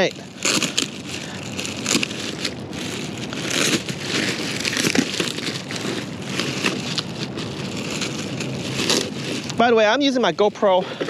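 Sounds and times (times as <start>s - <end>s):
packaging crinkling and rustling: 0.0s - 10.7s.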